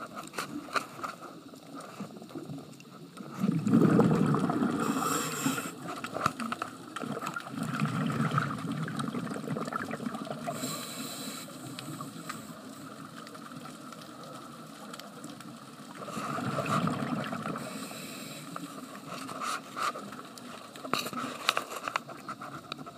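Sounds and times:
gurgle of exhaled bubbles: 0:02.4 - 0:10.8, 0:15.5 - 0:17.8
regulator hissing on inhalation: 0:04.7 - 0:05.9, 0:10.5 - 0:12.6, 0:17.6 - 0:18.7.

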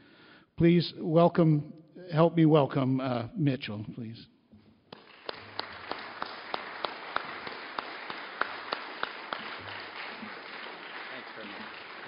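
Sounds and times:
audience applauding: 0:04.9 - 0:12.0
nearer louder claps: 0:04.9 - 0:12.0.

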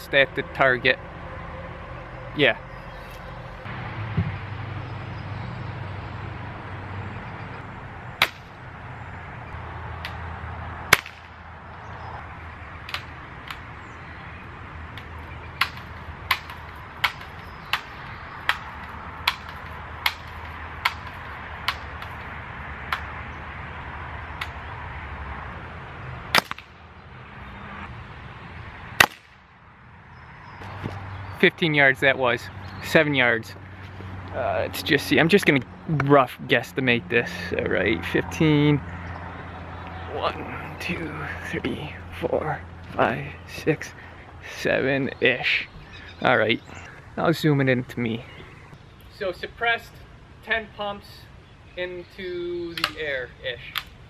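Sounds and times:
air rifle crack: 0:10.9 - 0:11.4, 0:26.3 - 0:26.7.

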